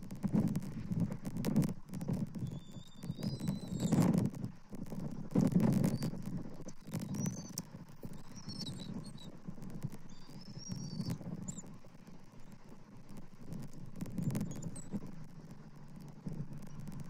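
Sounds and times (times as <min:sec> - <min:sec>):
faint clicks: 0:00.0 - 0:17.0
low uneven rumble: 0:00.0 - 0:17.0
high thin bird chirps: 0:06.8 - 0:09.3, 0:10.1 - 0:11.6.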